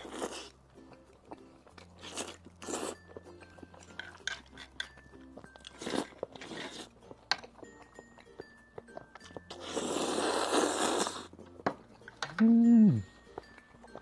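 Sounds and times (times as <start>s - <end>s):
soft background music: 0.0s - 14.0s
slurping noodles: 5.8s - 6.9s, 9.5s - 11.4s
person biting and chewing: 8.8s - 11.4s.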